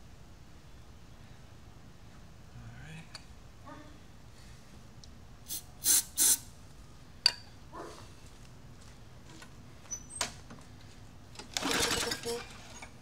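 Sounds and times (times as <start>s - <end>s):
aerosol can spraying: 5.5s - 6.4s.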